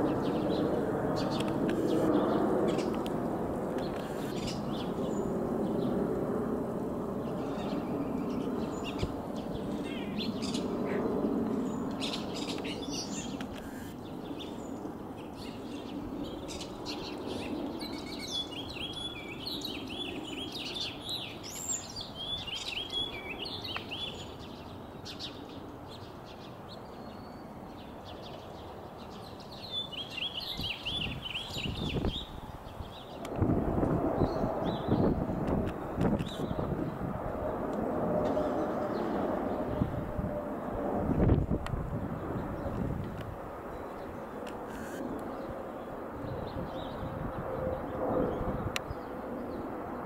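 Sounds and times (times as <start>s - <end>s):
small birds chirping: 0.0s - 6.1s, 7.2s - 33.3s, 34.2s - 37.0s
distant jet engine rumble: 0.0s - 50.0s.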